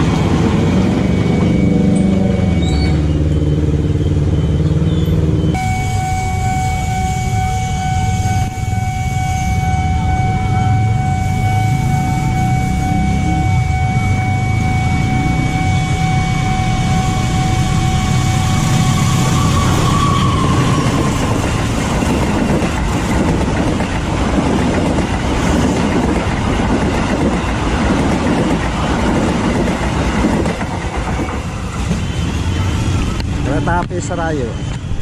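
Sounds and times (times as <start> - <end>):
steady warning tone: 0.0 - 24.2
train rumbling past: 0.0 - 35.0.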